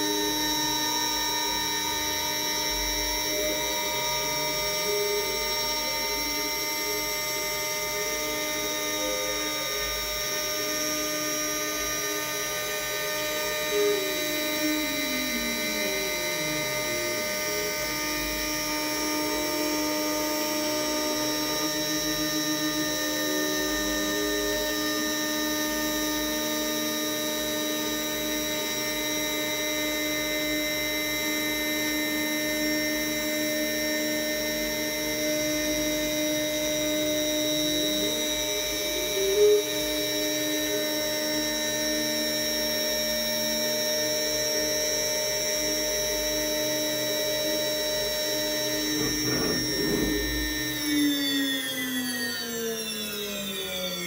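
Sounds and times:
carving head tone rising and falling: 0.0 - 29.0, 47.4 - 54.0
cnc router spindle whine: 0.0 - 54.0.

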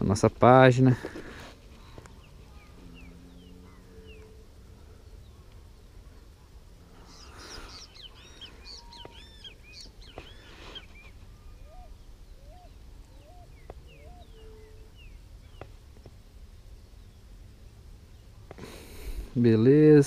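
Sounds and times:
birds chirping: 0.0 - 20.0
faint outdoor background noise: 0.0 - 20.0
bird rising notes: 2.1 - 5.1.

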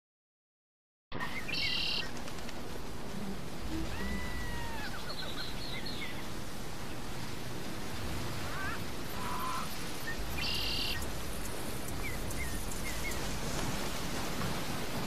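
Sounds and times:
birds chirping and whistling: 1.2 - 2.1, 3.8 - 6.2, 8.5 - 13.4
low outdoor noise: 1.2 - 15.0.

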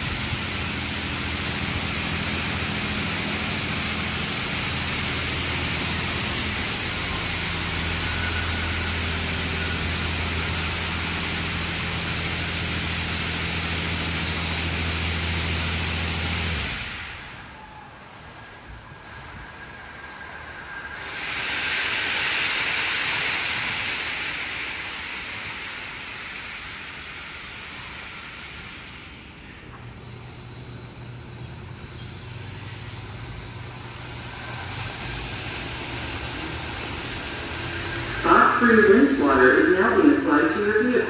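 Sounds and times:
pressurised water spray hissing: 20.9 - 29.3, 33.8 - 38.3.

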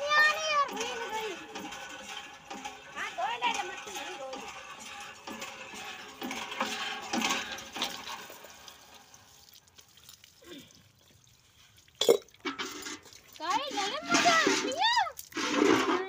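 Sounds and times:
hand pump clinking knocks: 0.0 - 9.1
water gushing and splashing: 0.0 - 16.0.

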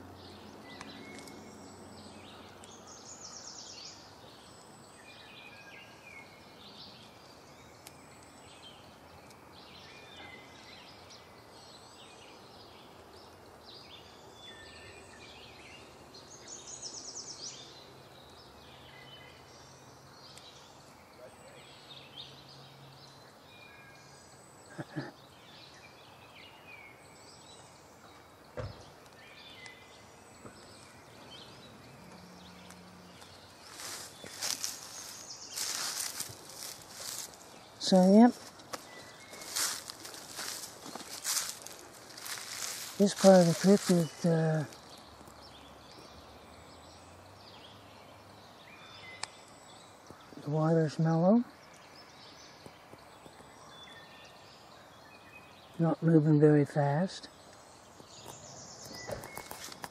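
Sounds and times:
birds singing and calling: 0.0 - 59.9
outdoor hiss: 23.4 - 45.1.

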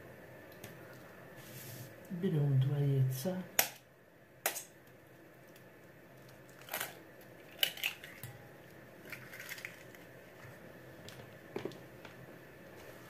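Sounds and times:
eggshells cracking: 5.5 - 8.2, 9.0 - 10.2.

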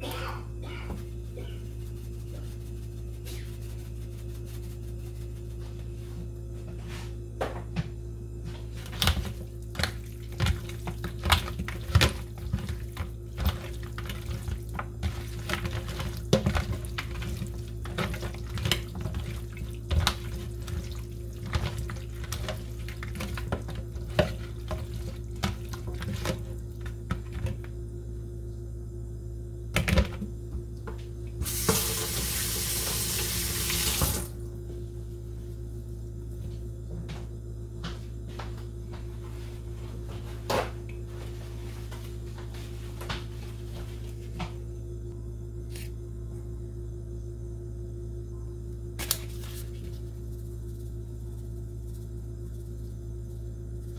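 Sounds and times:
steady low hum: 0.0 - 53.9
chicken wings slapping in colander: 8.8 - 27.7, 49.0 - 50.0
faucet running: 31.4 - 34.3.

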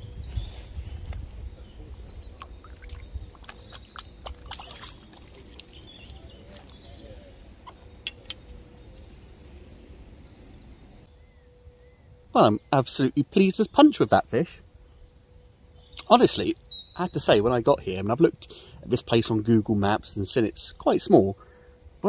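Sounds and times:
birds chirping: 0.0 - 22.0
water splashing and dripping: 2.3 - 6.9.

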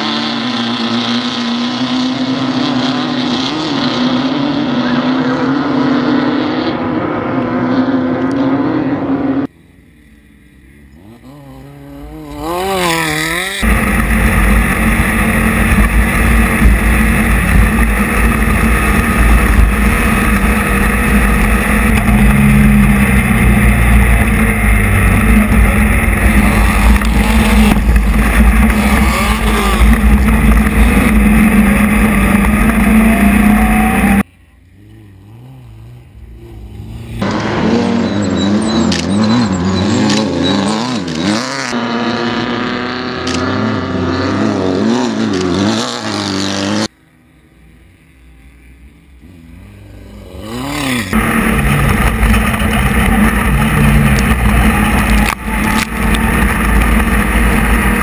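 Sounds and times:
buggy engines revving: 0.0 - 58.0
heavy engine rumble: 13.6 - 41.4, 50.4 - 58.0.

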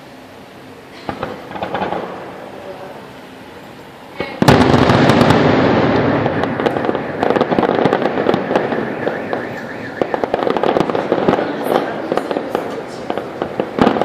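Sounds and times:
firework shell bursting: 0.9 - 3.1, 4.2 - 14.0
fireworks bangs and crackling pops: 1.0 - 2.7, 4.2 - 14.0.

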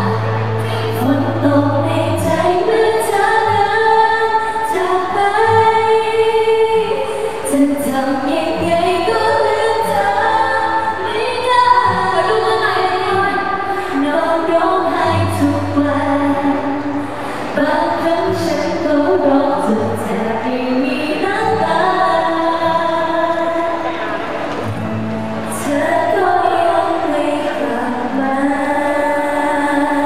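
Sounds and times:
women singing pop: 0.0 - 23.9, 25.5 - 30.0.

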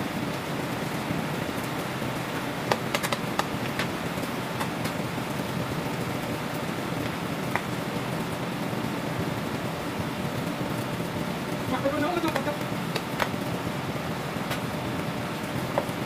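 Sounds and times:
commercial kitchen background noise: 0.0 - 16.0
sharp clicks and taps: 2.7 - 3.9, 12.3 - 13.4.

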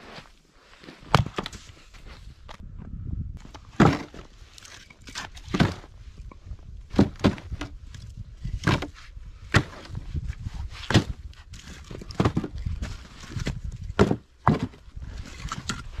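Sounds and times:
wooden logs clunking: 3.4 - 10.0, 10.9 - 16.0.

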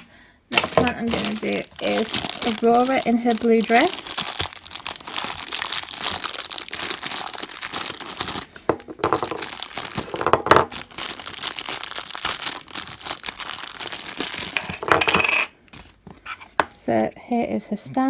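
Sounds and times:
plastic bag crinkling: 0.5 - 14.9.

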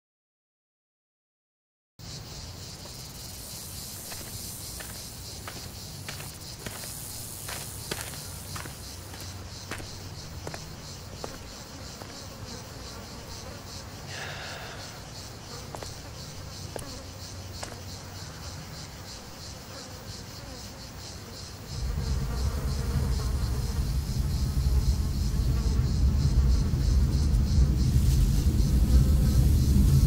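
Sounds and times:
insects buzzing: 2.0 - 30.0
loud low rumble: 21.8 - 30.0.

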